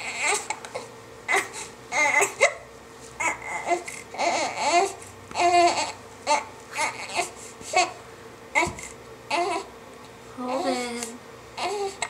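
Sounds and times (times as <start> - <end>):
baby whimpering and squealing: 0.0 - 2.6, 3.2 - 8.0, 8.6 - 9.7, 11.6 - 12.0.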